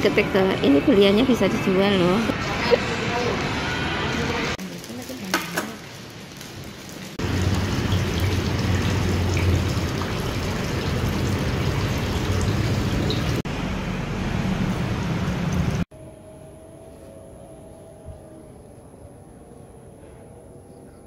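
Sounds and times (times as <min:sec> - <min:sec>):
water splashing into pond: 0:05.2 - 0:13.4
low hum: 0:07.2 - 0:21.0.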